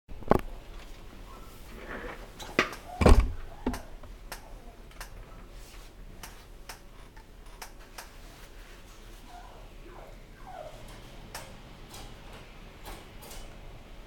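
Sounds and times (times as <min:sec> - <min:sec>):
dull thump: 0:03.0 - 0:03.9.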